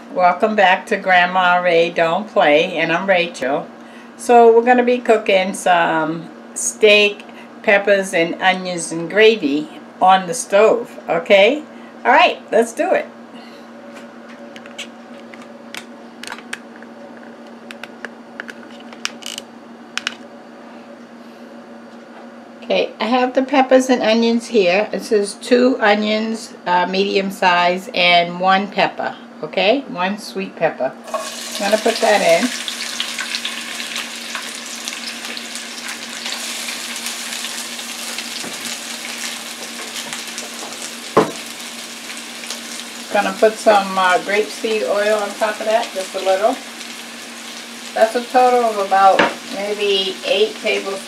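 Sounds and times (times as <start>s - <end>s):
steady low hum: 0.0s - 51.0s
vegetables sizzling in a frying pan: 31.0s - 51.0s
knock: 41.2s - 41.4s.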